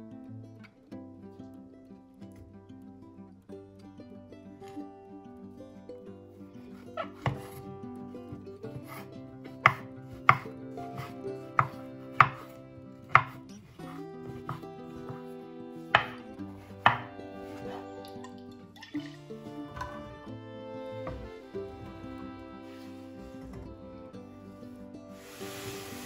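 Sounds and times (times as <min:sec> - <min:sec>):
knife chopping on wooden board: 0:07.0 - 0:07.6, 0:08.7 - 0:15.3, 0:15.9 - 0:17.8.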